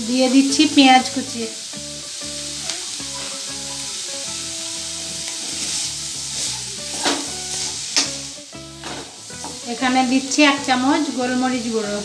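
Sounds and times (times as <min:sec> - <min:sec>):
vegetables sizzling in hot oil: 0:00.0 - 0:12.0
wooden spatula scraping pan: 0:05.3 - 0:08.2, 0:08.8 - 0:09.7.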